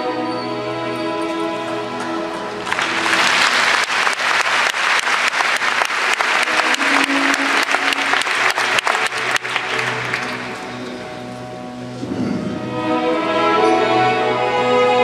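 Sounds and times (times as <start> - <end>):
faint orchestra held notes: 0.0 - 15.0
audience applauding: 2.0 - 11.4.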